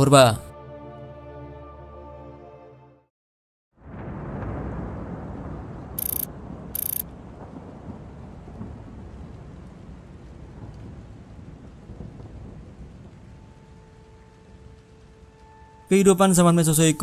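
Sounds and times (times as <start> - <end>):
low rumbling thunder: 3.8 - 14.9
rain-like hiss: 3.9 - 17.0.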